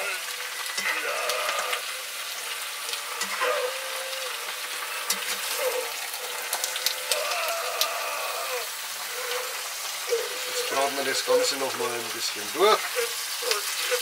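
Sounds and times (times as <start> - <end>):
food sizzling in a frying pan: 0.0 - 14.0.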